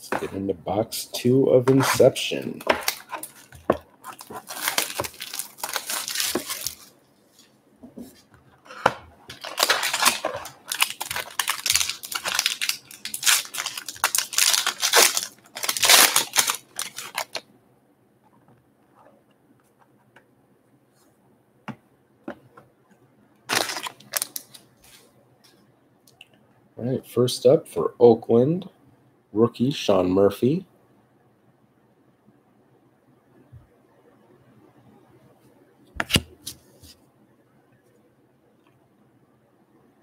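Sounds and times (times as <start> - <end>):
wrapping crinkling: 1.7 - 7.5, 8.7 - 17.4, 23.5 - 25.1
foil card pack tearing: 4.1 - 6.8, 9.3 - 17.4, 23.5 - 24.6.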